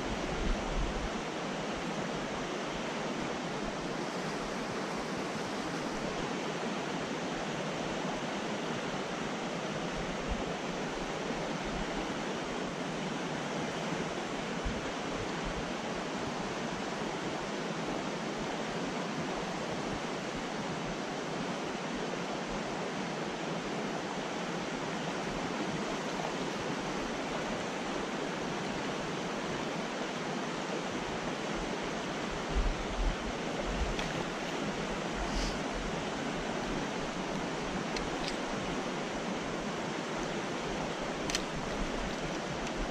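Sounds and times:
stream rushing over rocks: 0:00.0 - 0:42.9.

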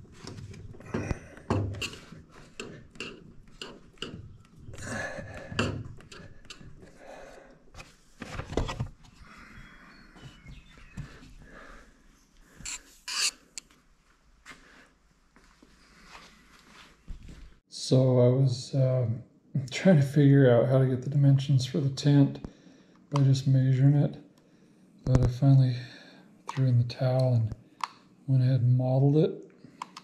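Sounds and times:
rubber seal rubbing and scraping: 0:12.7 - 0:13.5.

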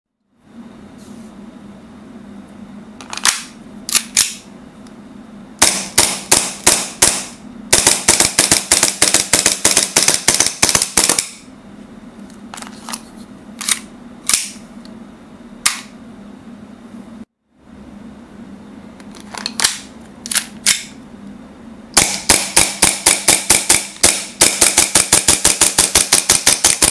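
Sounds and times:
steady low hum: 0:00.2 - 0:26.9
airsoft pistol shots: 0:05.6 - 0:11.4, 0:22.0 - 0:26.9.

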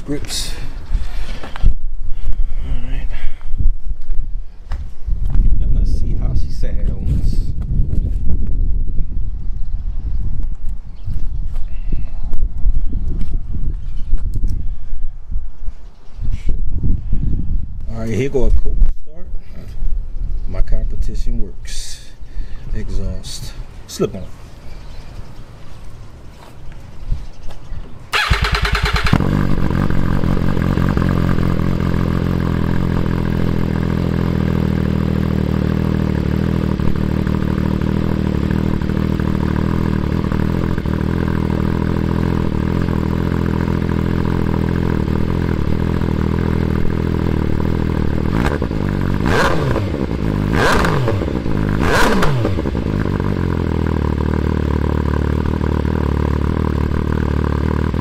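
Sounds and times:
motorcycle engine idling and revving: 0:28.1 - 0:58.0
starter motor cranking: 0:28.2 - 0:29.4.

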